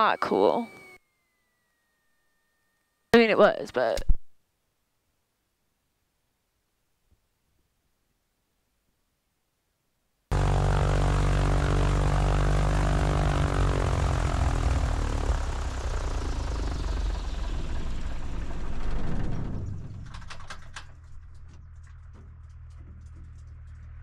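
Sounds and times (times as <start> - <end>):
propeller airplane engine: 10.3 - 24.0.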